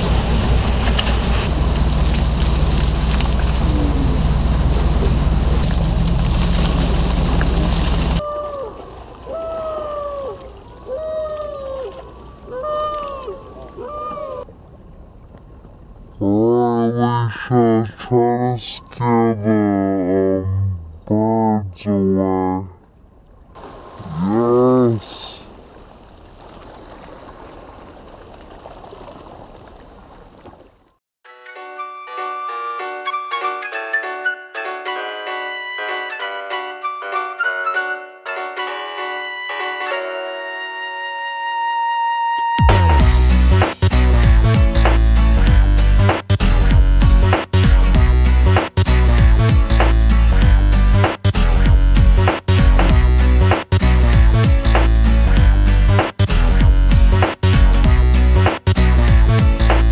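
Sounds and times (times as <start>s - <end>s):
steady outdoor rushing noise: 0.0s - 8.2s
boat engine humming: 0.0s - 16.0s, 42.6s - 59.9s
water noise: 0.0s - 31.0s, 39.0s - 59.9s
long wailing calls: 8.2s - 14.5s
music with sustained notes: 31.3s - 46.1s.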